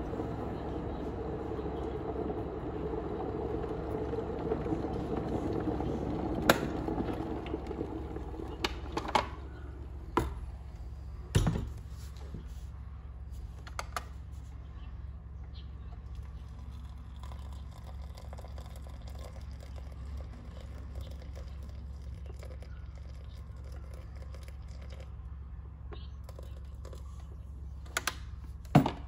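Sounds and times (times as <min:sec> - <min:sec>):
kettle boiling: 0:00.0 - 0:10.9, 0:16.0 - 0:25.2.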